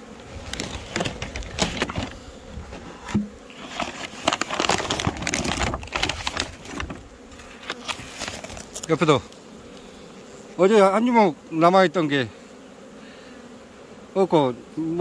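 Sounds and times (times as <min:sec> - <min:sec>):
honeybees buzzing: 0:00.0 - 0:15.0
paper sack rustling and crinkling: 0:00.1 - 0:09.2.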